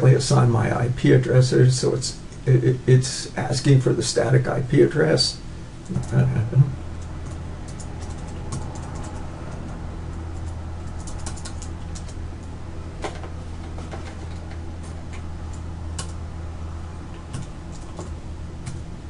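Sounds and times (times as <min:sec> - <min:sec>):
steady low hum: 0:00.0 - 0:19.0
keyboard keys clicking: 0:07.0 - 0:09.8, 0:10.4 - 0:12.2, 0:15.5 - 0:16.2.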